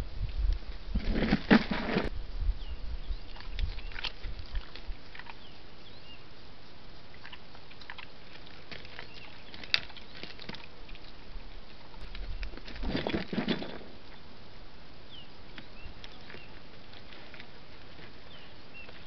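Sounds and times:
steady hiss: 0.0 - 8.7, 13.8 - 19.0
clicks and scrapes on stony ground: 0.4 - 2.1, 3.3 - 5.5, 7.1 - 14.2, 15.5 - 19.0
faint bird chirps: 4.9 - 7.8.

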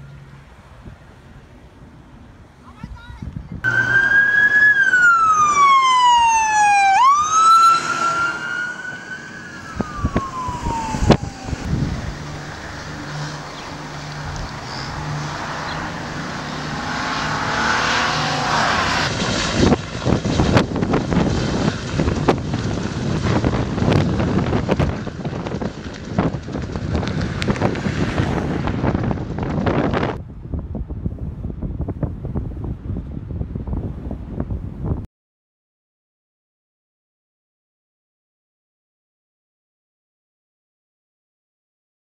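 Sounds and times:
gusty rumbling noise: 0.6 - 35.1
emergency siren wailing: 3.7 - 23.6.

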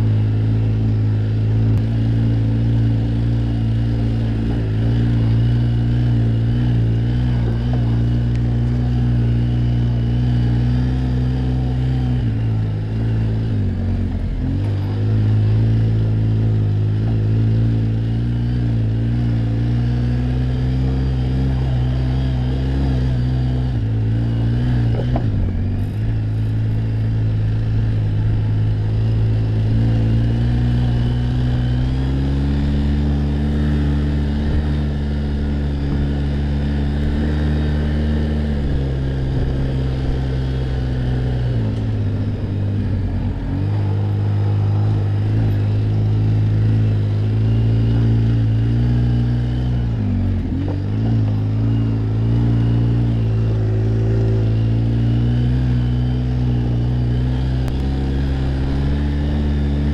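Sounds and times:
atv engine revving: 0.0 - 59.9.

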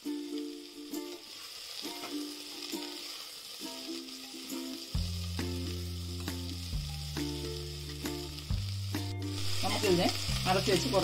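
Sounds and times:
plucked background music: 0.0 - 11.0
vegetables sizzling in hot oil: 0.0 - 11.0.

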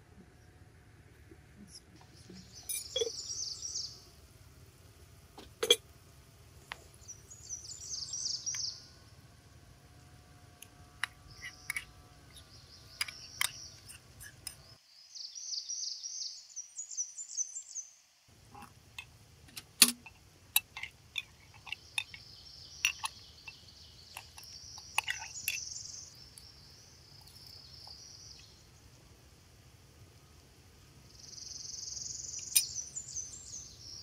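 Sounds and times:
high chirping: 2.2 - 4.0, 31.2 - 34.0
metal spoon clinking on clay pot: 19.8 - 25.7.

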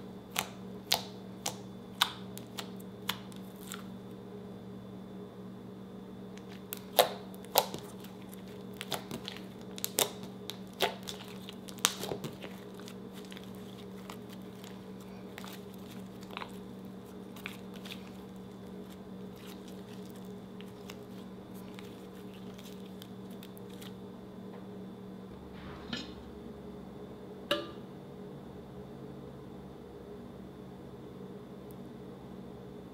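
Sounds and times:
low hum: 7.8 - 29.8.

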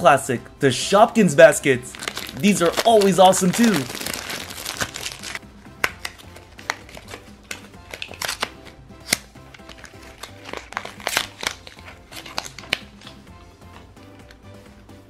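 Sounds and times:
soft background music: 0.0 - 15.0
plastic packaging clicks and crinkles: 1.9 - 13.2.

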